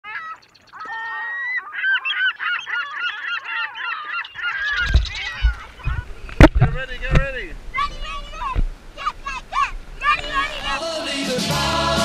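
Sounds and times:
geese honking: 0.1s - 6.1s, 9.1s - 12.0s.

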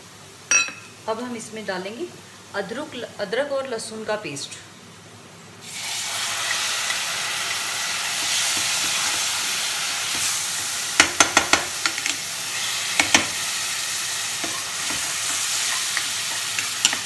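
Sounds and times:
paste sizzling in hot oil: 5.6s - 17.0s
spoon knocking against pan: 11.0s - 12.1s, 13.0s - 13.4s.

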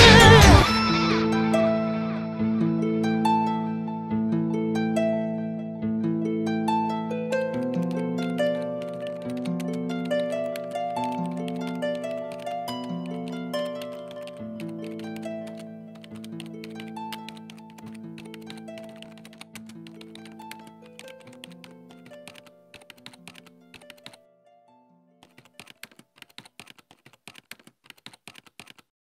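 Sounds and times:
music with held notes: 0.0s - 25.3s
keyboard typing clicks: 7.5s - 24.2s, 25.2s - 28.9s.

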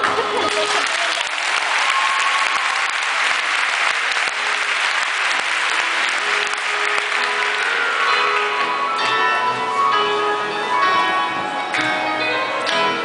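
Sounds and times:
audience applauding: 0.0s - 9.9s
performance music: 0.0s - 13.0s.

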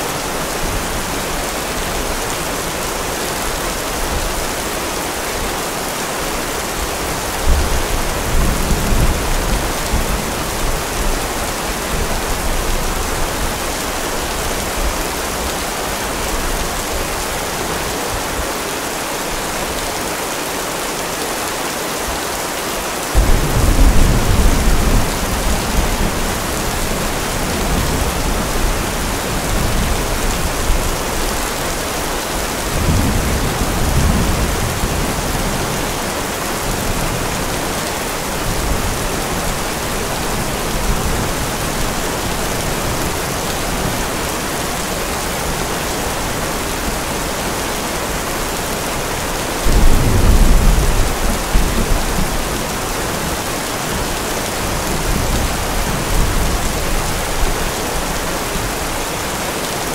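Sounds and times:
steady rain: 0.0s - 59.9s
rolling thunder: 23.2s - 30.8s, 49.6s - 52.5s.

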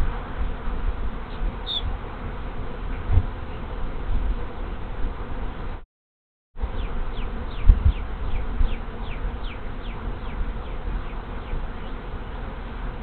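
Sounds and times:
hum of many bees: 6.6s - 13.0s.

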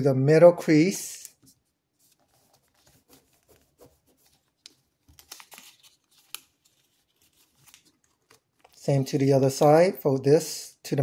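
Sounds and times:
paper rustling and crinkling: 1.3s - 8.9s.

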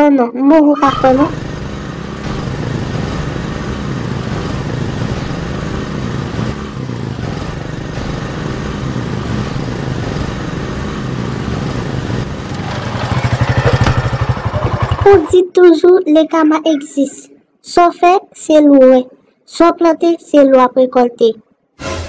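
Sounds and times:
motorcycle engine running: 0.8s - 15.4s.

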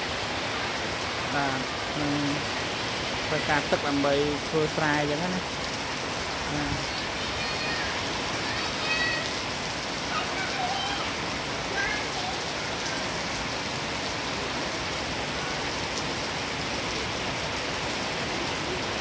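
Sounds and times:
heavy rain on grass and concrete: 0.0s - 19.0s.

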